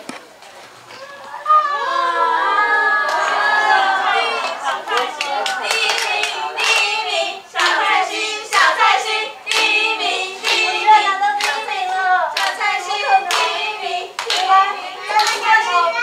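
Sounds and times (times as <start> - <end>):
high voices singing: 1.5 - 16.0
hand claps keeping a beat: 4.4 - 15.9.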